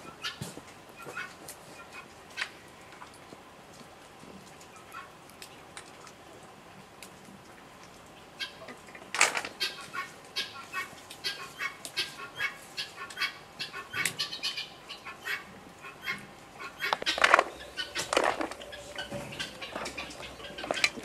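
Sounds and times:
walnut shells cracking: 0:16.8 - 0:18.6.

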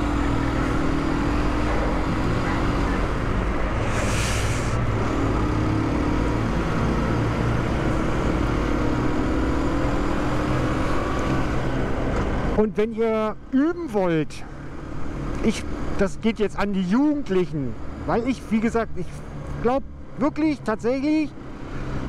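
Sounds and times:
wind and road noise: 0:00.0 - 0:22.0
brief hiss: 0:03.8 - 0:04.8.

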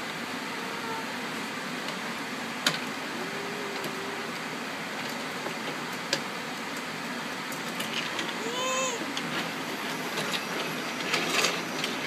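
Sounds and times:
steady background hum: 0:00.0 - 0:12.0
wooden toy trains clacking on track: 0:03.7 - 0:04.4, 0:07.5 - 0:12.0.

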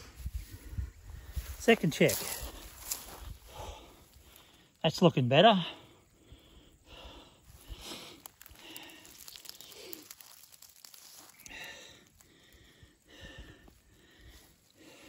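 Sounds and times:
wire net clicks: 0:08.0 - 0:11.5.

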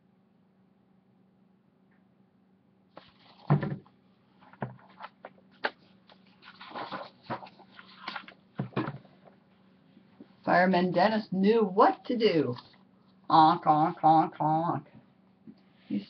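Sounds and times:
faint steady hum: 0:00.0 - 0:16.0
paper rustling: 0:02.9 - 0:03.8, 0:04.4 - 0:09.2.

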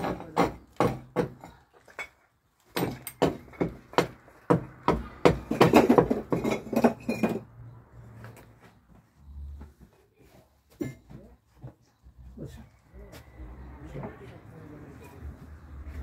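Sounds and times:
hard objects clinking: 0:05.4 - 0:07.5.

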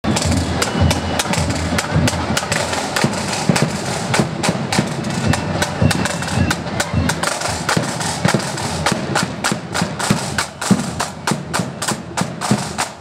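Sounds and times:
side drums: 0:00.0 - 0:13.0.

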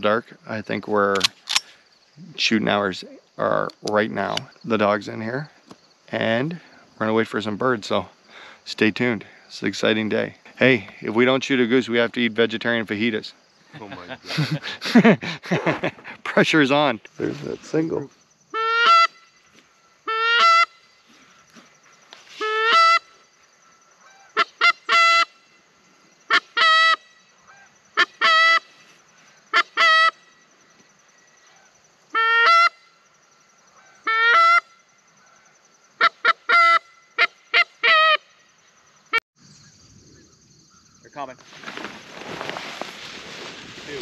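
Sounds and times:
goose call honks: 0:18.6 - 0:19.2, 0:20.1 - 0:20.8, 0:22.4 - 0:23.1, 0:24.1 - 0:25.4, 0:26.3 - 0:28.7, 0:32.1 - 0:32.9, 0:34.0 - 0:34.7, 0:36.0 - 0:38.2.

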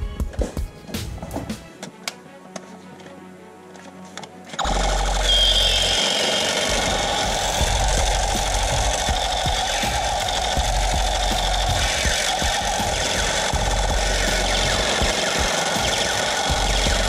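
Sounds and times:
motor rattling with rapid clicks: 0:04.5 - 0:17.0.

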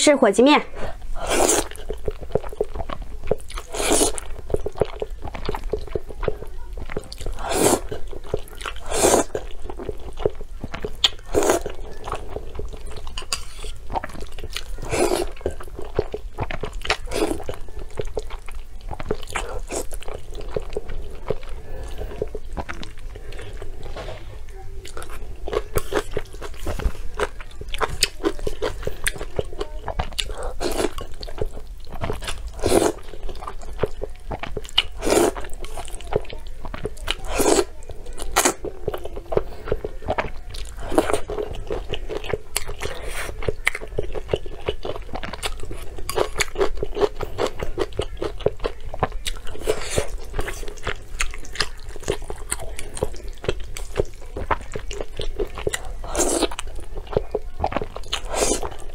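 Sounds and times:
noodle slurping: 0:00.8 - 0:05.9, 0:06.9 - 0:18.2, 0:34.4 - 0:36.0
wet chewing: 0:00.8 - 0:58.9.

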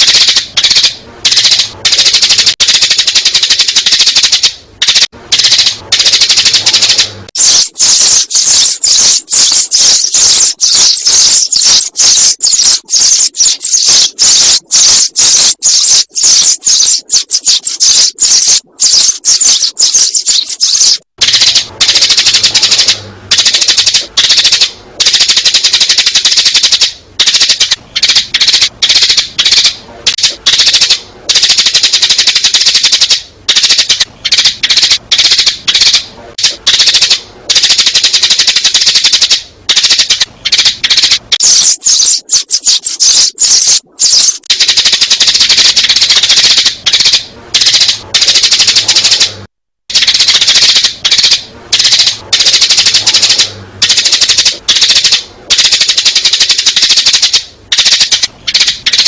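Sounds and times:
sparrows chirping: 0:06.6 - 0:21.6, 0:41.3 - 0:44.5.

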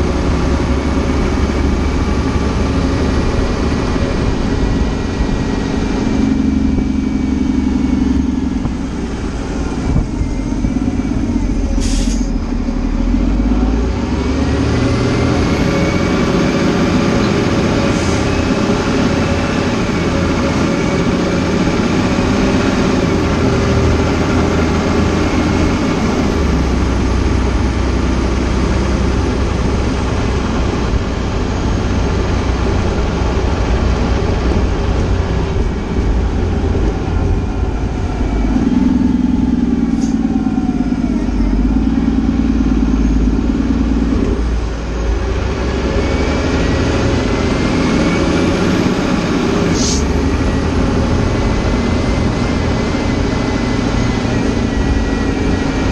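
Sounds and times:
fire engine driving: 0:00.0 - 0:55.9
siren rising and falling: 0:34.5 - 0:55.9.

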